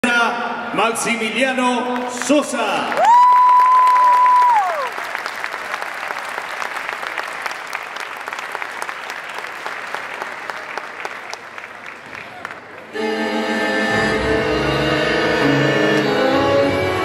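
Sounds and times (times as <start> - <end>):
audience applauding: 2.0 - 12.9.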